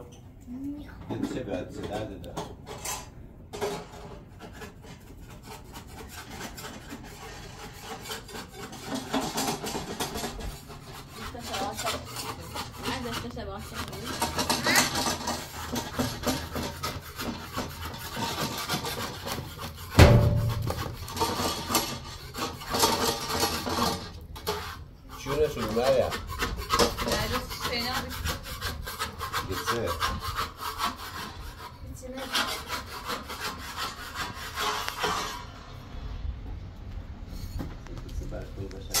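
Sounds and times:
scraping on wood: 1.1 - 36.2
heavy knock: 19.9 - 21.5.

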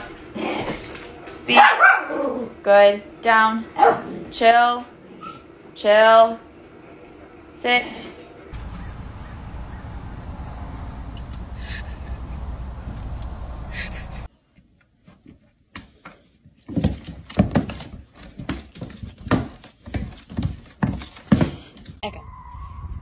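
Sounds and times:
cats thumping and scraping on floor: 15.1 - 22.0.

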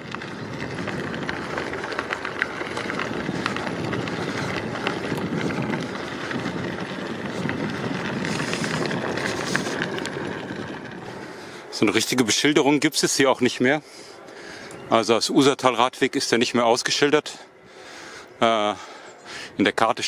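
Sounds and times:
tyre rolling and wind rush: 0.0 - 11.9.

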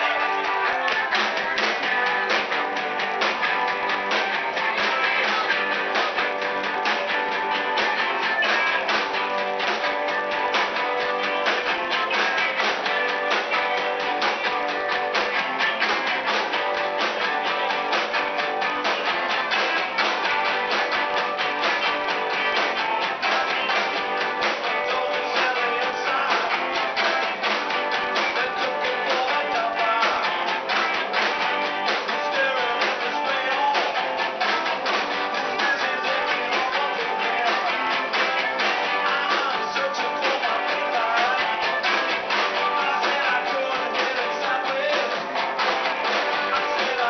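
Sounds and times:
person singing: 0.0 - 17.1, 22.0 - 45.4, 46.1 - 47.0
drums: 0.0 - 47.0
electric guitars: 0.0 - 47.0
upright bass: 0.0 - 47.0.

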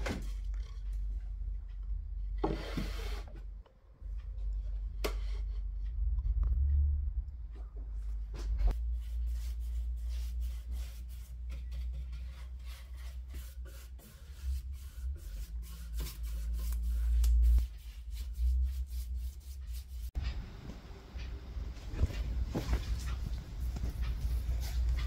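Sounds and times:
low rumble: 3.9 - 9.0
scratchy paintbrush strokes: 8.7 - 20.4, 22.6 - 25.0.

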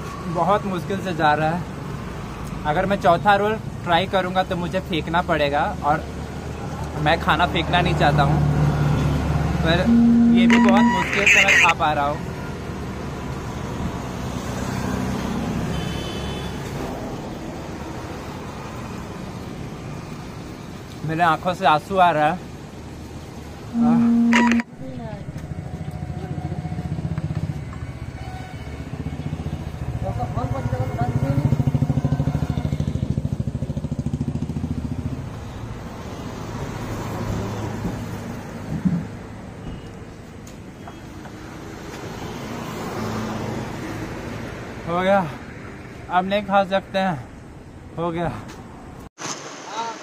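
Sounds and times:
short high tone: 9.9 - 11.7, 23.8 - 25.0.

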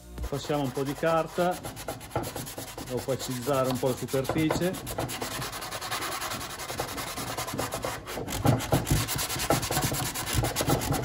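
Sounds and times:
sandpaper rubbing: 0.2 - 11.0.

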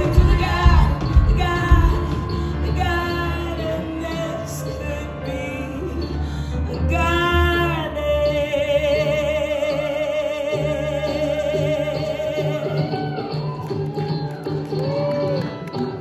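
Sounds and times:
low bass: 0.0 - 9.8
woman singing: 0.0 - 13.6
banjo and band playing: 0.0 - 16.0.

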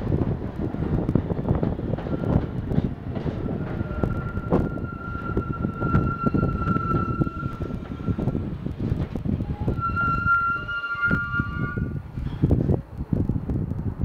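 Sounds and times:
subway cars rumbling past: 0.0 - 12.7
high-pitched metallic squeal: 3.4 - 8.4, 9.5 - 12.0.

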